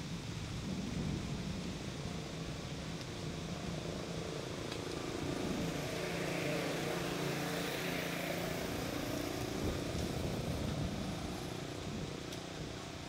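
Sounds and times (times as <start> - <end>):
low engine drone: 3.4 - 12.2.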